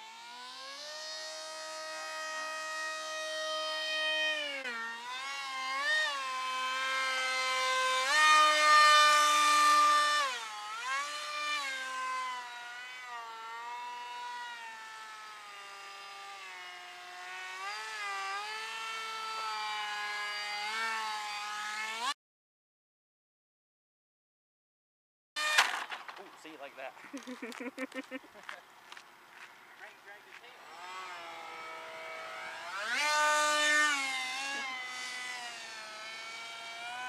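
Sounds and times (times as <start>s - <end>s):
model plane electric motor whine: 0.0s - 22.2s, 25.4s - 26.1s, 30.0s - 37.0s.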